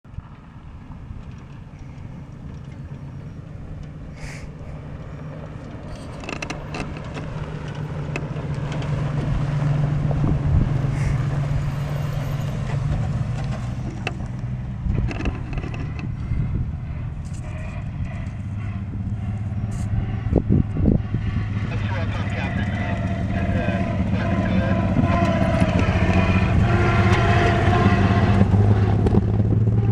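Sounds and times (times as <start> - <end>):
stones crackling under tyres: 0.1 - 4.4, 5.0 - 19.9
rally car engine running: 0.1 - 29.9
second rally car engine: 0.1 - 29.9.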